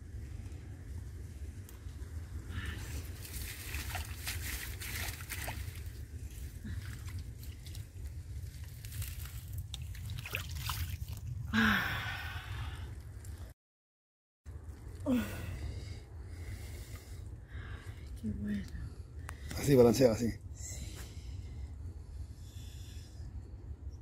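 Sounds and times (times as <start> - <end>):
low rumble: 0.0 - 13.6, 14.5 - 19.6
reeds and net crackling: 1.6 - 11.7.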